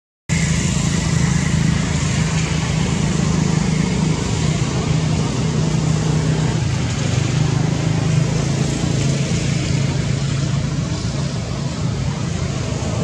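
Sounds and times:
loud even hiss: 0.3 - 13.0.

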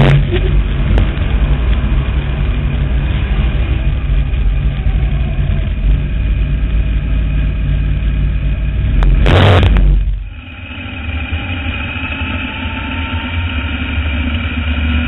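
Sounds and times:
race car engine running: 0.0 - 15.0
burst of harsh noise: 8.8 - 15.0.

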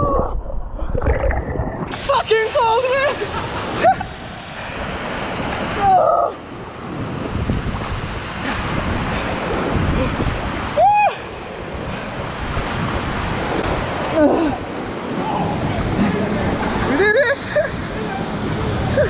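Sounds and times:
choppy water: 0.0 - 19.0
wind noise: 0.0 - 19.0
waterfall rushing: 1.9 - 19.0
swimmer crying out: 5.6 - 6.6, 8.3 - 12.1, 13.9 - 19.0.

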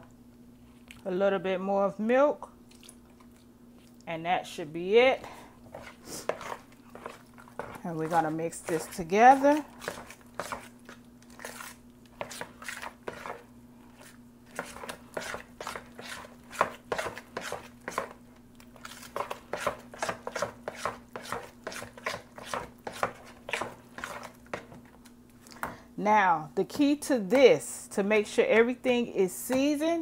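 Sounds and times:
spoon stirring batter in bowl: 5.2 - 25.1.

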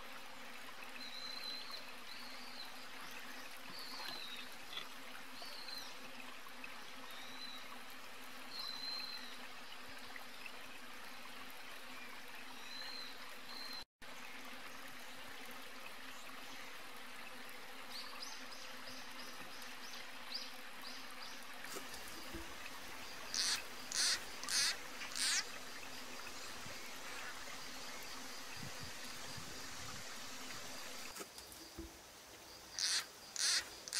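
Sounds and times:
insect hum: 20.3 - 33.9.

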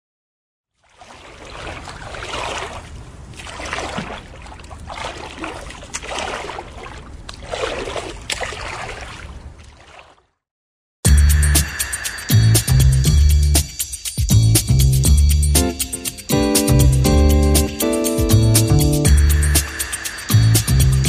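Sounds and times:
pool water lapping and gurgling: 0.7 - 10.4.

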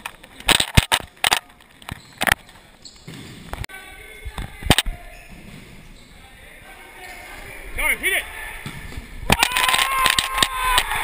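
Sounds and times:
ball thudding off feet and court: 3.0 - 3.7.

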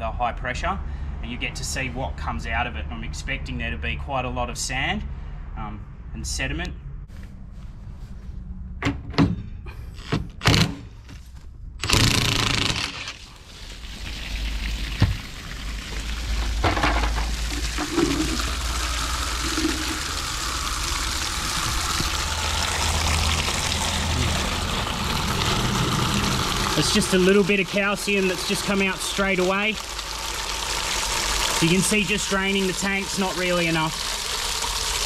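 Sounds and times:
cordless impact wrench bursts: 11.8 - 13.2
water pouring out of tank: 13.0 - 35.0.

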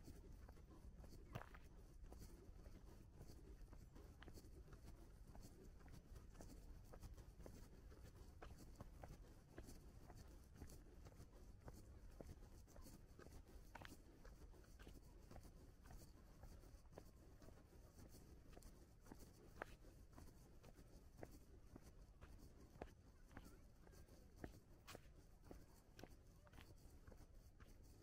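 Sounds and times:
faint footsteps: 0.0 - 28.0.

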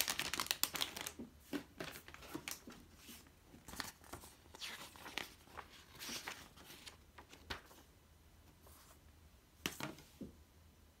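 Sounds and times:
paper pages rustling: 0.0 - 7.9.

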